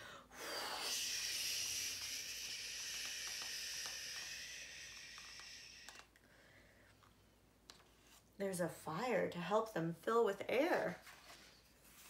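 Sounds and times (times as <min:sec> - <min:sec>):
person making breathy hiss: 0:00.0 - 0:06.2.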